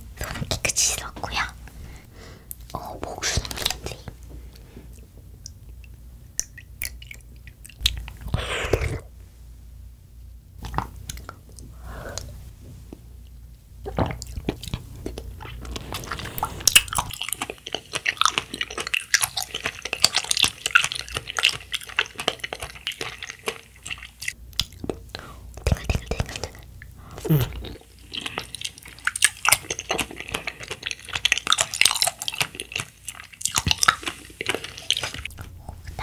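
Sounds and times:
wet chewing of jelly: 4.6s - 9.0s, 12.9s - 36.0s.

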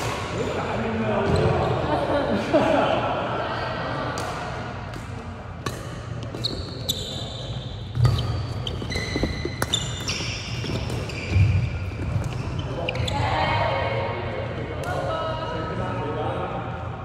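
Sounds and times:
racket hitting shuttlecock: 4.2s - 6.5s
sneakers squeaking on court: 5.6s - 13.4s.

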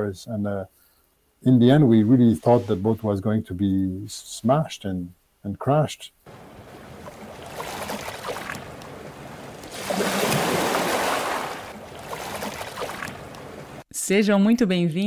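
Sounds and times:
sea waves washing: 6.3s - 13.8s.

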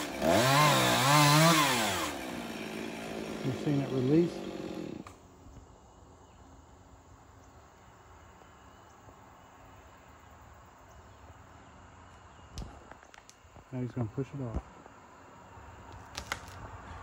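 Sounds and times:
chainsaw: 0.0s - 5.2s.

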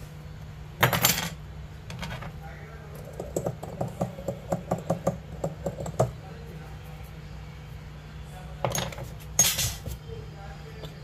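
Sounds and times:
metal tools clattering on workbench: 0.8s - 2.3s, 8.6s - 9.9s.

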